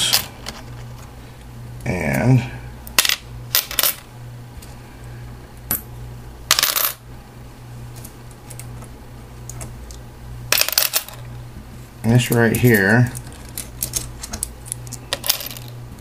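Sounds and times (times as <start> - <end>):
low steady hum: 0.0 - 16.0
coins clinking onto stacks: 6.5 - 7.0, 10.5 - 11.2, 15.1 - 15.8.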